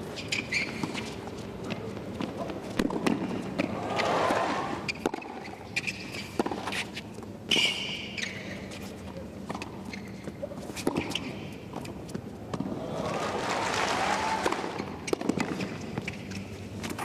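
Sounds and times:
shoe squeak: 0.1 - 1.2, 3.9 - 9.0, 9.8 - 11.6
tennis ball hit by racquet: 2.8 - 5.4, 14.4 - 15.8.

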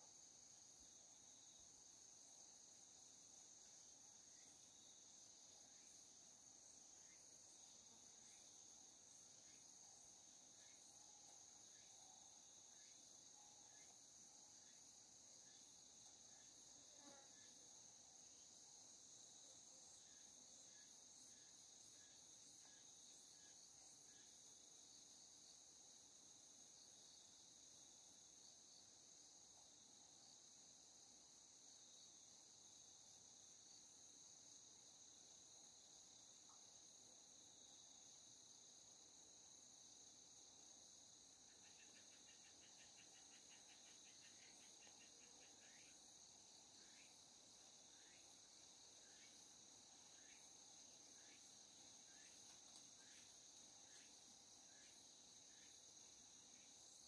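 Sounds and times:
insect chorus pulsing trill: 40.9 - 57.0.

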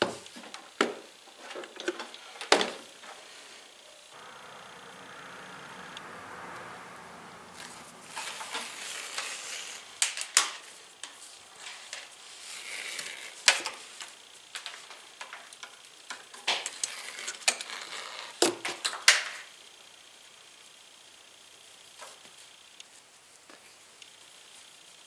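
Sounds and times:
plastic sheathing peeling: 7.6 - 14.8.

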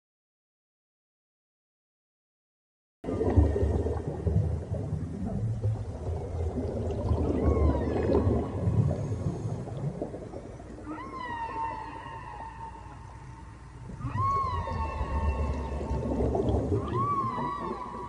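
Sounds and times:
whale-like calls: 3.1 - 18.0
low rumble: 12.6 - 18.0.

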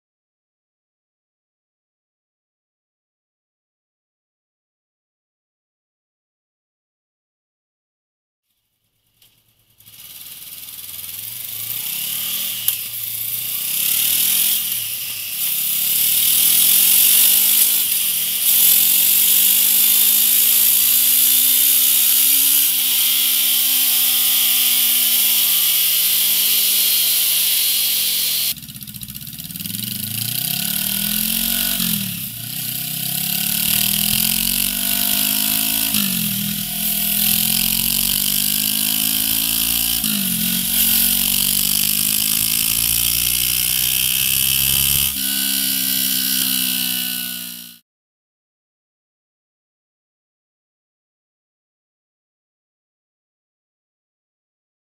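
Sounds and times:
motorcycle engine revving: 9.1 - 47.8
steady high hiss: 14.6 - 28.5.

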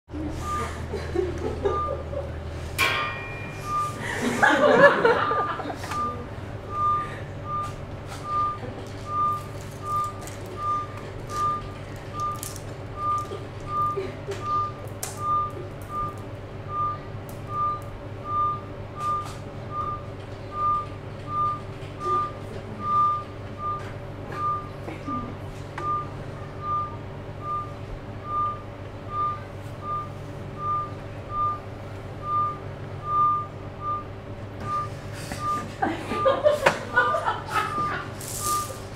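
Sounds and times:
steady low hum: 0.1 - 38.9
electronic beeps: 0.4 - 0.8, 3.4 - 4.0, 5.9 - 24.7, 25.8 - 35.6, 37.7 - 38.8.

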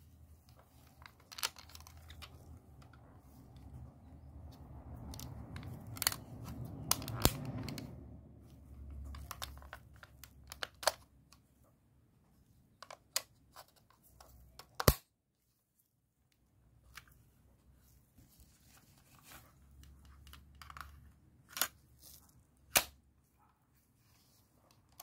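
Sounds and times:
plastic casing rubbing and rustling: 0.0 - 7.9
sharp plastic clicks: 5.0 - 8.0, 9.0 - 11.4, 14.5 - 15.1, 22.7 - 23.0.

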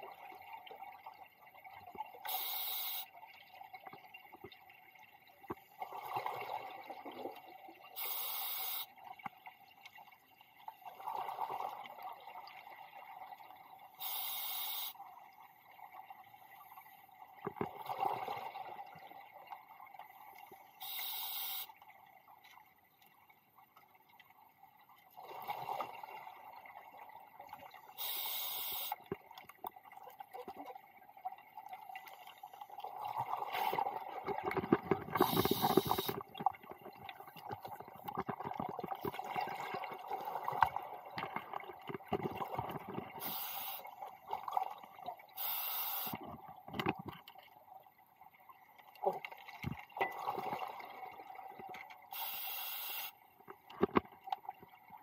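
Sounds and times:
regulator inhalation hiss: 2.3 - 3.1, 8.0 - 8.9, 14.0 - 15.0, 20.8 - 21.7, 28.0 - 29.0, 35.2 - 36.2, 43.2 - 43.9, 45.4 - 46.2, 52.1 - 53.1
exhaled bubbles: 32.8 - 43.4.

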